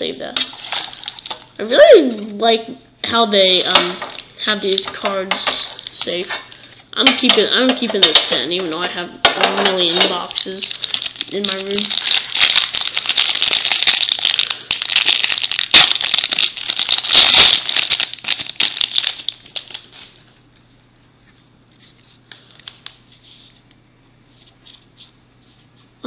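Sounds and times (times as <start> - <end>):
cellophane wrapper crinkling and tearing: 0.4 - 1.6, 3.4 - 4.9, 5.5 - 7.3, 9.8 - 20.2, 21.8 - 23.6.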